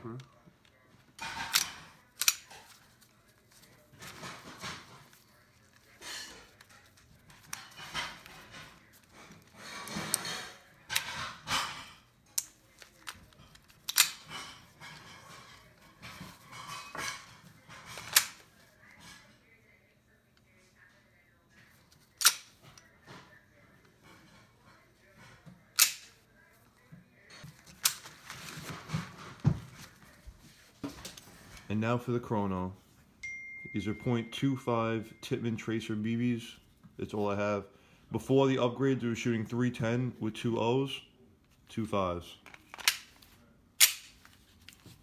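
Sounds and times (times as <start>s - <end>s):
pistol parts clicking and sliding: 1.4s - 3.1s, 12.3s - 14.3s, 18.0s - 18.4s, 22.0s - 22.9s, 25.7s - 26.2s, 42.4s - 44.8s.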